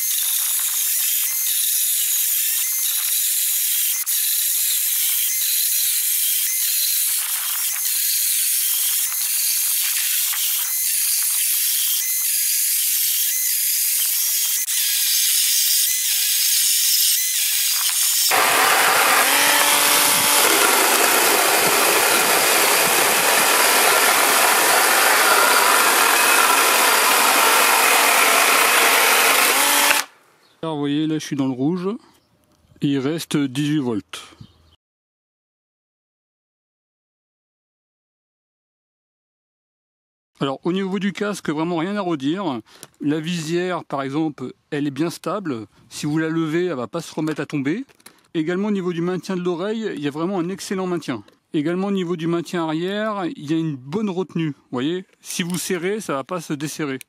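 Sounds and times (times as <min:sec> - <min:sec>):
electric motor whine: 0:00.0 - 0:30.1
chainsaw chain cutting wood: 0:00.0 - 0:30.2.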